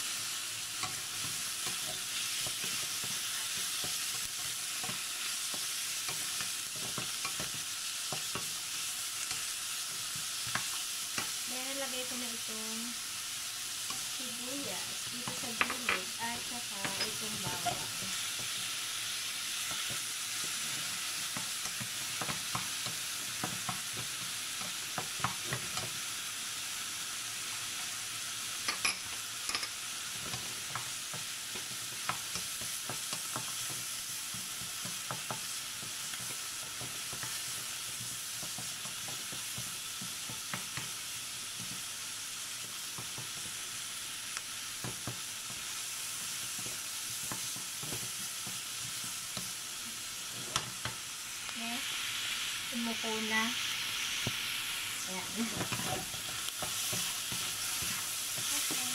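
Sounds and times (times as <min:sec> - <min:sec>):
food sizzling in hot oil: 0:00.0 - 0:58.9
wooden spatula scraping pan: 0:55.2 - 0:58.9.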